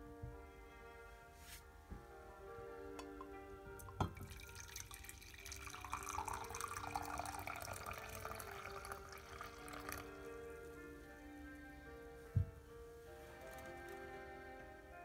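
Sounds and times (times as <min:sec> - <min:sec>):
liquid pouring into a mug: 0:03.8 - 0:10.5.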